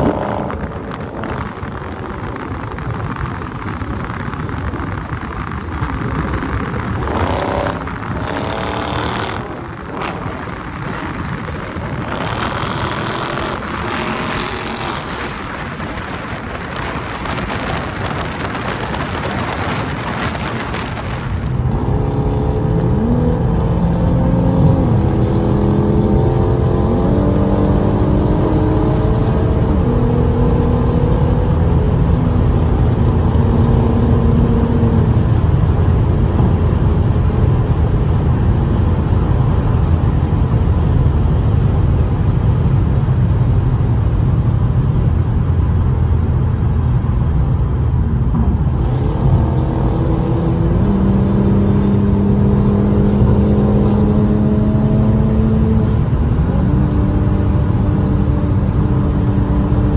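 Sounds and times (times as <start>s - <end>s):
road noise: 0.0s - 59.9s.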